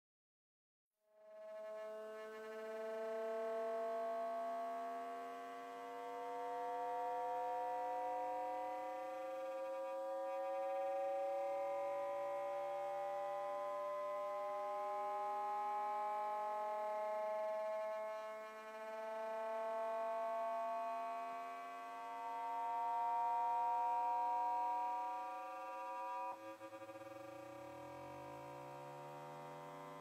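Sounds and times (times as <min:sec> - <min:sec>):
buzzy electronic drone gliding in pitch: 0:01.2 - 0:30.0.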